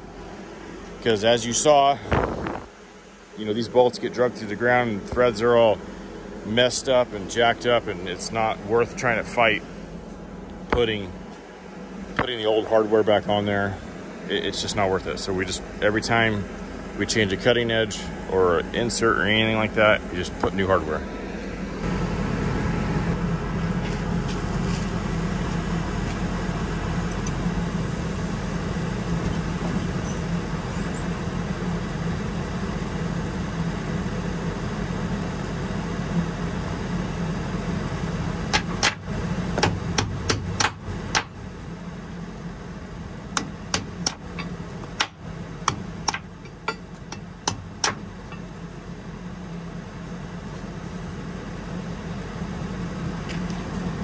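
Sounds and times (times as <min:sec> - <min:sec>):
engine drone: 0:00.0 - 0:54.0
hammer striking metal bolts: 0:38.5 - 0:41.4, 0:43.4 - 0:48.5.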